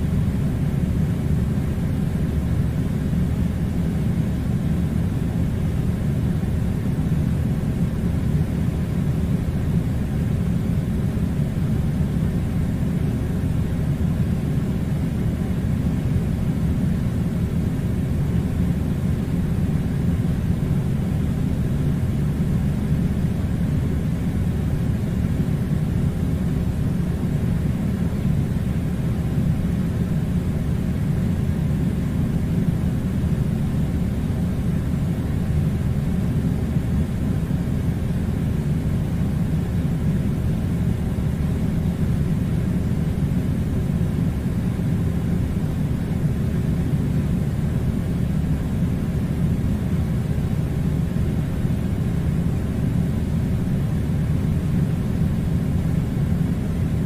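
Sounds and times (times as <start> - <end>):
air conditioner running: 0.0 - 57.0.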